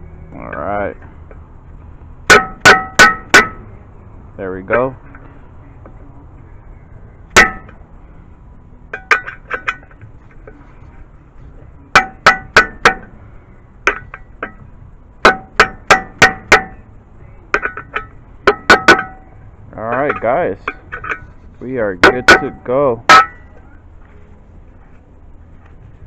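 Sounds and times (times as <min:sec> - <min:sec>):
mallet tapping metal tool: 0:02.3 - 0:03.7, 0:07.3 - 0:07.8, 0:08.9 - 0:10.6, 0:11.9 - 0:13.1, 0:13.8 - 0:16.8, 0:17.5 - 0:19.3, 0:19.9 - 0:21.3, 0:22.0 - 0:23.7.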